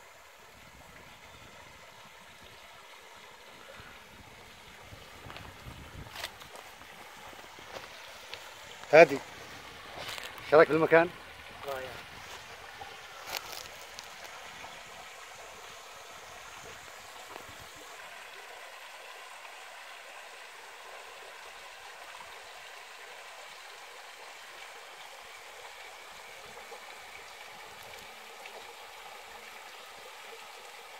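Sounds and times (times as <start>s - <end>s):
water trickling and dripping: 0.0s - 30.9s.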